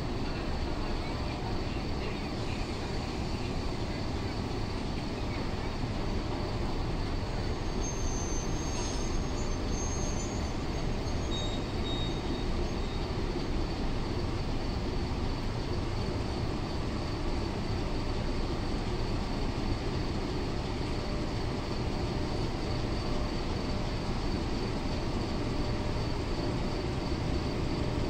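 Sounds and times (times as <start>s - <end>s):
train rumbling: 0.0s - 28.0s.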